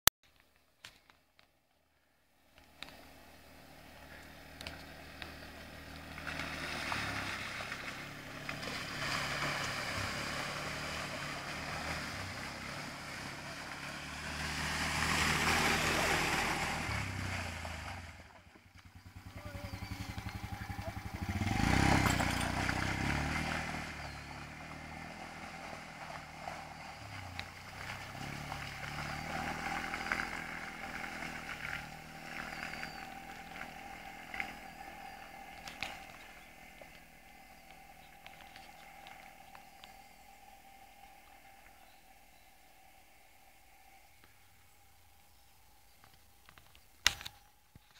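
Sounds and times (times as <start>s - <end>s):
quad bike engine revving: 2.8s - 40.0s.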